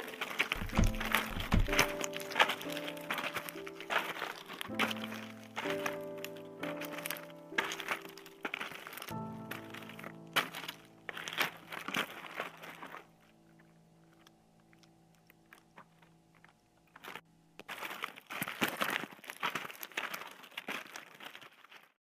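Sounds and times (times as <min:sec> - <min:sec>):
crunching and crinkling: 0:00.0 - 0:22.0.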